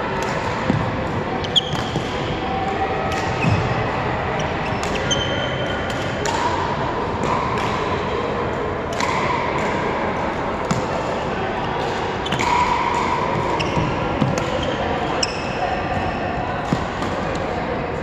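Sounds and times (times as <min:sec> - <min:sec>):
steady background noise: 0:00.0 - 0:18.0
shoes squeaking on court: 0:01.4 - 0:02.0, 0:13.3 - 0:15.6
rackets hitting shuttlecock: 0:03.0 - 0:03.7, 0:04.7 - 0:08.0, 0:08.8 - 0:09.9, 0:10.6 - 0:11.2, 0:11.8 - 0:17.6.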